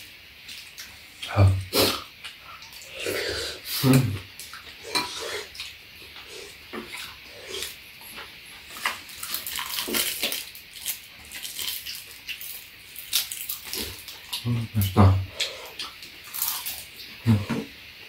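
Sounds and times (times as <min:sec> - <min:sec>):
slurping and smacking while eating: 0:00.5 - 0:10.5.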